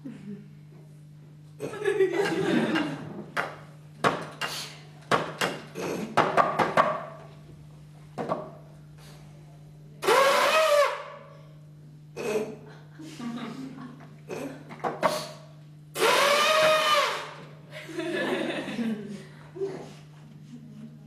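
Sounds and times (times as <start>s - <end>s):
loud vocal squeal: 10.0s - 11.1s, 16.0s - 17.4s.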